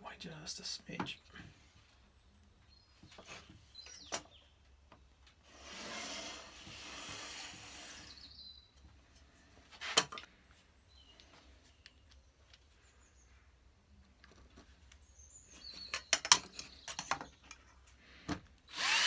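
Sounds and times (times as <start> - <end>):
plywood scraping on bench: 5.5 - 8.4.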